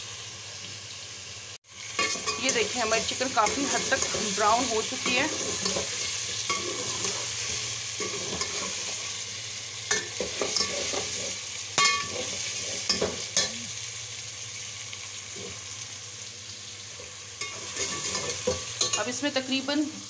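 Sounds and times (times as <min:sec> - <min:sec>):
chicken sizzling in oil: 0:00.0 - 0:20.0
metal spoon scraping pot: 0:02.0 - 0:09.0, 0:09.9 - 0:13.2, 0:17.4 - 0:19.1.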